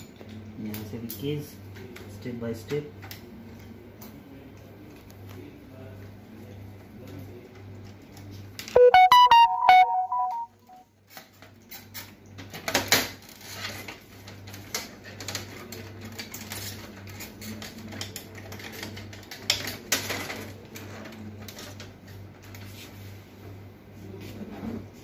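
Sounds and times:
falling chime notes: 0:08.8 - 0:10.6.

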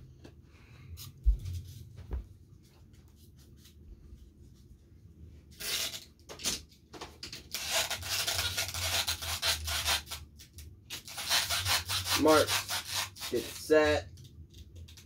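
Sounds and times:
rubbing and scraping on wood: 0:11.0 - 0:13.8.

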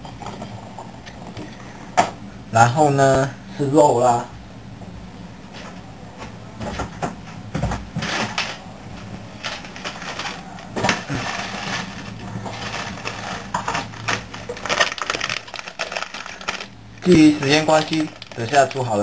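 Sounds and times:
steady low hum: 0:00.0 - 0:19.0
packaging rustling: 0:08.0 - 0:19.0.

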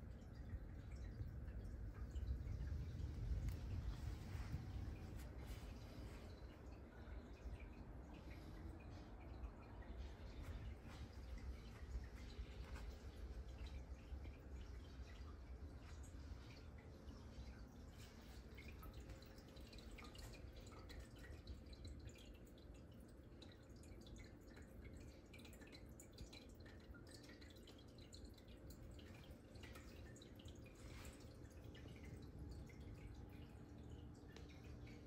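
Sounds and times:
low hum: 0:00.0 - 0:21.7
faint light ticks: 0:00.4 - 0:06.4, 0:34.2 - 0:35.0.

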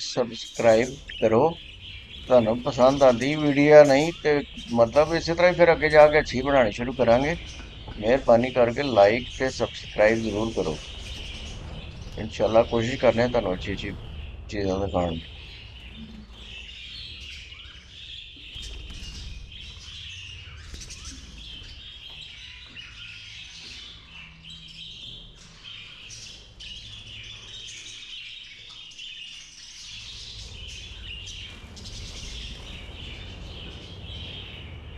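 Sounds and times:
budgerigars chattering and chirping: 0:00.0 - 0:34.9
low rumble: 0:00.6 - 0:27.8, 0:29.8 - 0:34.9.

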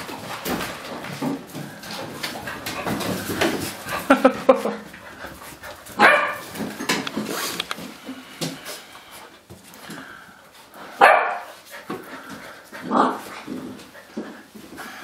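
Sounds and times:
paws scuffling on tile floor: 0:00.0 - 0:15.0
puppies barking and yipping: 0:01.9 - 0:07.1.

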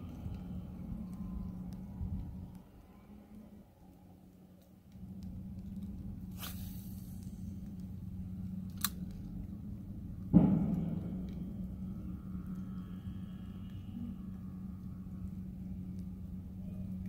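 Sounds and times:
steady low hum: 0:00.0 - 0:17.0
fishing rod swish: 0:06.3 - 0:07.1
loud knock: 0:10.3 - 0:12.5.

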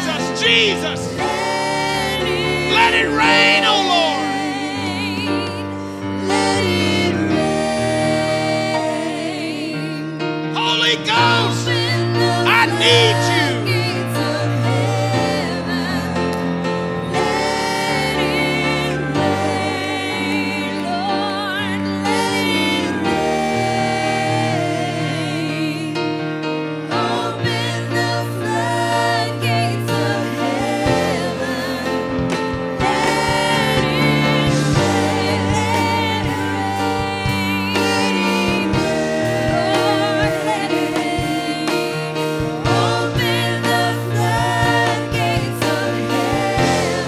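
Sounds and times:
person singing with vibrato: 0:00.0 - 0:05.6, 0:09.6 - 0:14.4
bass: 0:00.0 - 0:47.0
sustained keyboard chords: 0:00.0 - 0:47.0
worship band playing slow music: 0:00.0 - 0:47.0.

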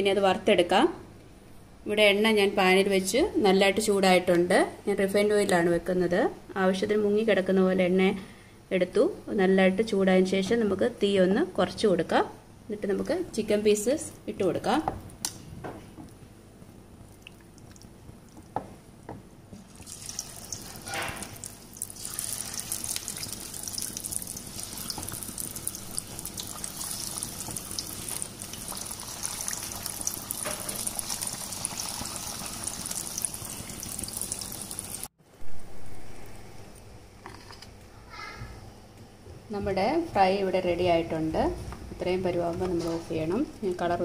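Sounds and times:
chicken sizzling in hot oil: 0:19.7 - 0:35.1.

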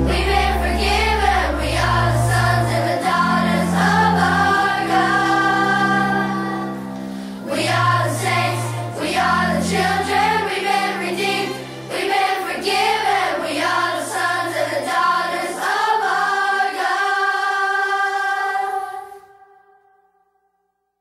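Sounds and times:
sustained bass notes: 0:00.0 - 0:14.7
voices singing: 0:00.0 - 0:19.5.

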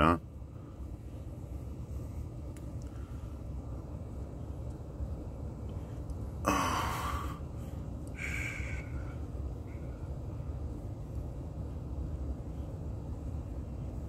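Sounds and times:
steady low rumble: 0:00.0 - 0:14.0
breathy exhalation: 0:06.4 - 0:09.8.

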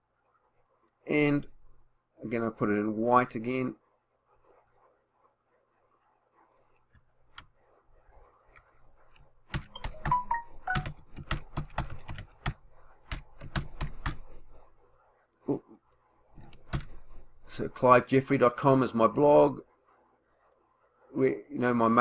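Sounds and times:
typing on computer keyboard: 0:09.1 - 0:14.5, 0:16.4 - 0:17.1.

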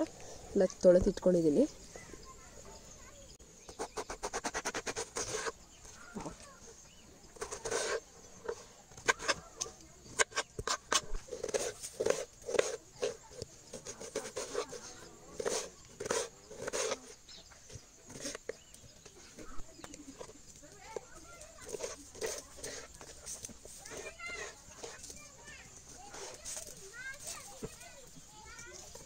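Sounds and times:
knife crunching through fruit: 0:07.4 - 0:18.7, 0:21.4 - 0:25.3.

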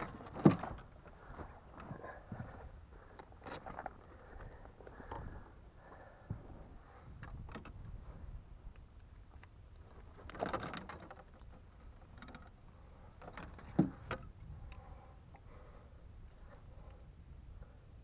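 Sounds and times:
net frame rattling: 0:10.1 - 0:12.5.

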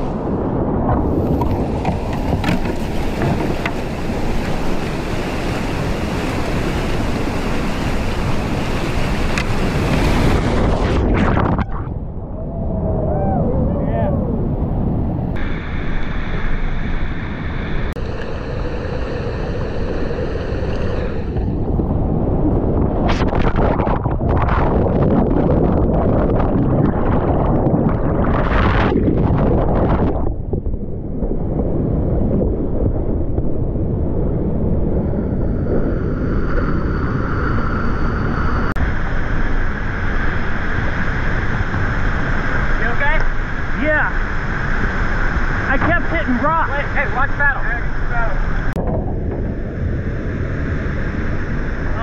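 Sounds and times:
whitewater rushing roar: 0:01.4 - 0:11.8.

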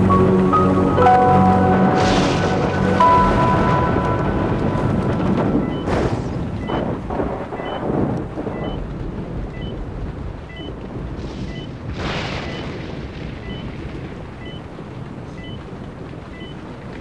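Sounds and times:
breathy rush of noise: 0:00.0 - 0:05.3
steady low rumble: 0:00.0 - 0:14.5
patient monitor beeping: 0:03.0 - 0:06.0, 0:06.6 - 0:06.9, 0:07.6 - 0:07.9.

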